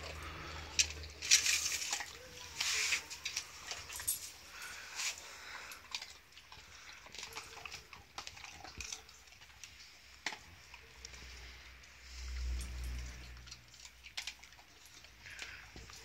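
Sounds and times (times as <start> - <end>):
dog chewing bone: 5.7 - 11.1, 12.8 - 16.0.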